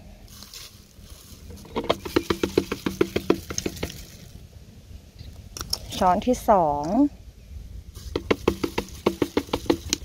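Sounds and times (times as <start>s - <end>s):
spoon tapping plastic funnel: 1.8s - 4.0s, 8.1s - 10.0s.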